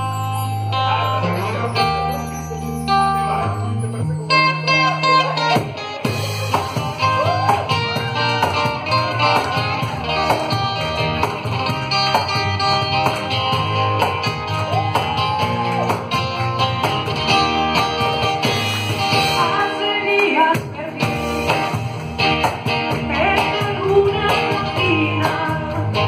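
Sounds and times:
electric guitar: 0.0 - 26.0
hand percussion: 0.0 - 26.0
woman singing: 19.4 - 21.6, 23.1 - 26.0.

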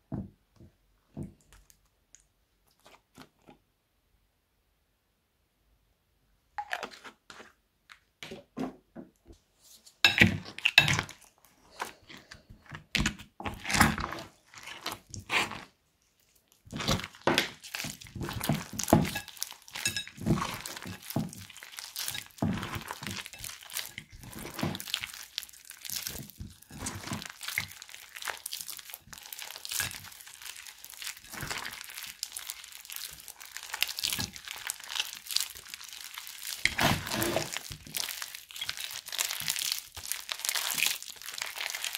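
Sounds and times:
hands squishing sticky slime: 10.0 - 41.9.

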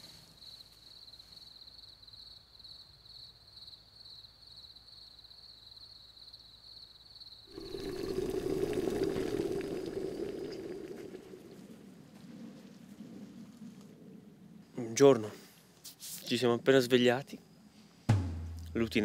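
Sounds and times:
crickets trilling: 0.4 - 15.1
moka pot bubbling loudly: 7.5 - 11.8.

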